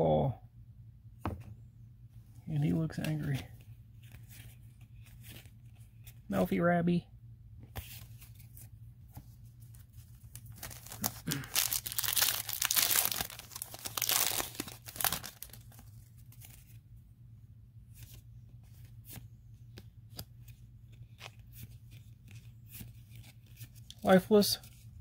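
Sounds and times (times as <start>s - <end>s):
foil pack tearing and crinkling: 10.3s - 16.6s.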